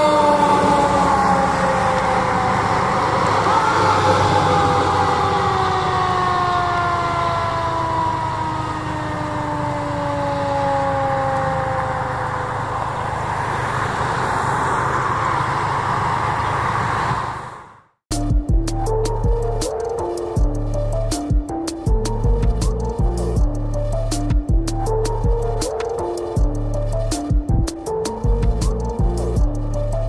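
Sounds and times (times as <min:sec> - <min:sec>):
siren winding down: 0:00.0 - 0:17.9
engines rumbling: 0:00.0 - 0:30.0.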